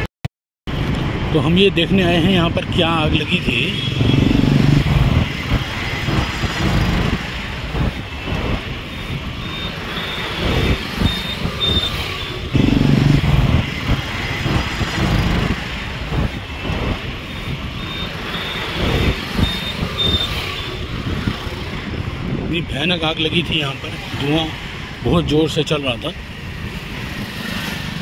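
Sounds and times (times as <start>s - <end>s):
road traffic rumble: 0.7s - 28.0s
electronic warning beeps: 9.3s - 13.4s, 17.2s - 20.7s.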